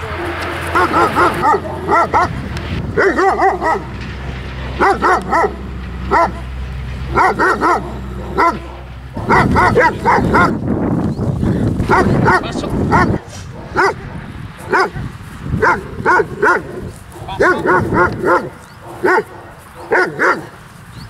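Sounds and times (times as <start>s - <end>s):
dog barking aggressively: 0.0s - 10.7s, 11.6s - 20.7s.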